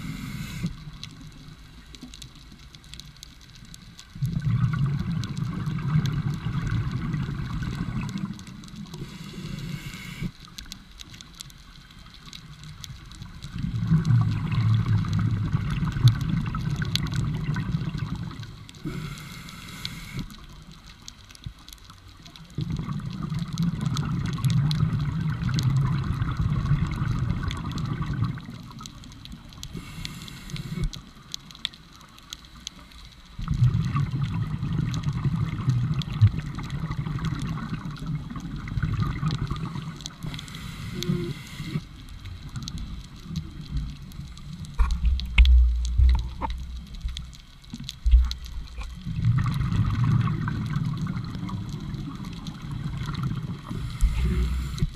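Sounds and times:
diver breathing through regulator: 0.0s - 0.8s, 8.9s - 10.4s, 18.8s - 20.3s, 29.7s - 31.0s, 40.2s - 41.9s, 53.7s - 54.9s
gurgling exhaled bubbles: 4.2s - 10.3s, 13.4s - 20.2s, 22.5s - 29.5s, 33.4s - 47.3s, 47.9s - 54.9s.

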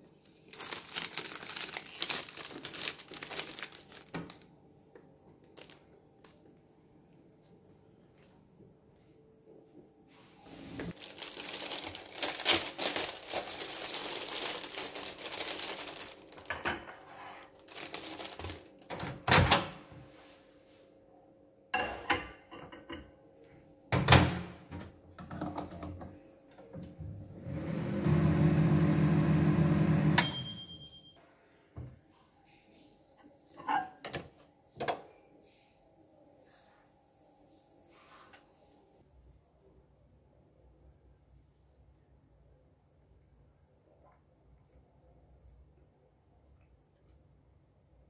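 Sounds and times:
rustling and handling: 0.0s - 19.0s
microwave oven humming: 23.9s - 30.9s
microwave timer bell ding: 30.2s - 31.2s.

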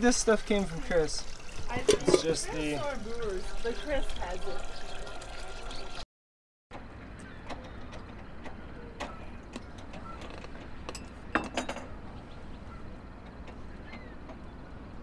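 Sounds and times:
glass set down clinking: 10.9s - 11.9s.

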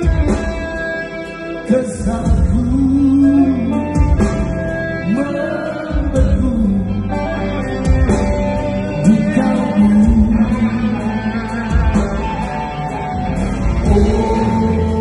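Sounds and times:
rock band playing live: 0.0s - 15.0s
man singing: 1.6s - 7.6s, 8.8s - 12.0s, 13.8s - 15.0s.

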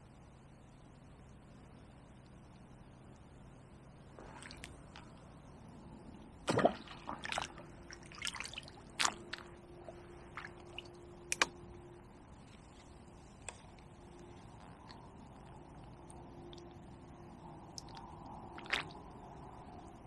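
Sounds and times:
water splashing and dripping: 4.2s - 5.1s, 6.5s - 11.5s, 18.6s - 19.0s.

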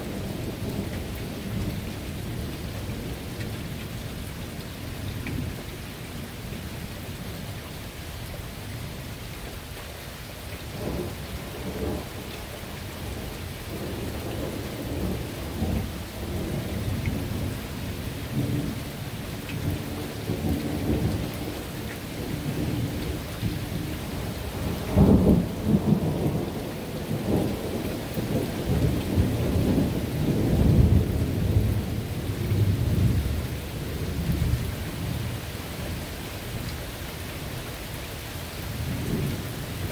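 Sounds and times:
steady rain: 0.0s - 39.9s
rolling thunder: 22.2s - 35.2s.

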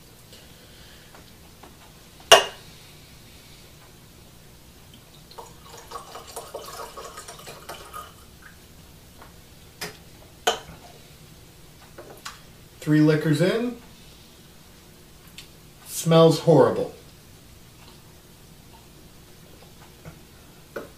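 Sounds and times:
liquor glugging into a glass: 5.3s - 8.2s.

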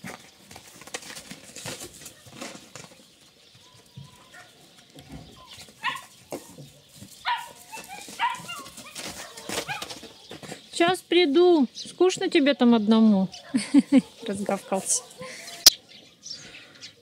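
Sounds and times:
puppy yapping: 7.3s - 9.9s.

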